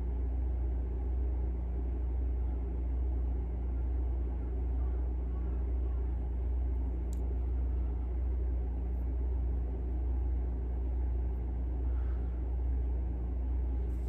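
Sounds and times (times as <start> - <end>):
faint hum: 0.0 - 14.0
low background rumble: 0.0 - 14.0
faint click: 7.1 - 7.3.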